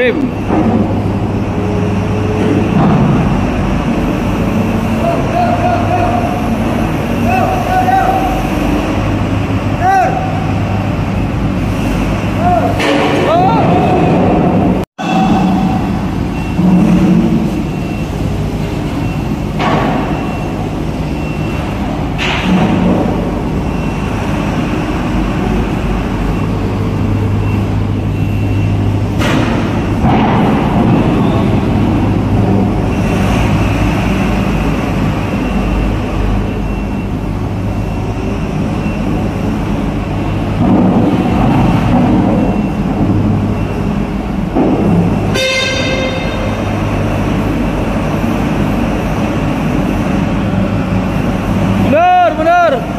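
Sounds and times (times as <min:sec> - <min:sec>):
diesel forklift running: 0:00.0 - 0:52.9
metal knocks and clanks: 0:12.7 - 0:18.0, 0:22.0 - 0:23.8, 0:29.1 - 0:32.6.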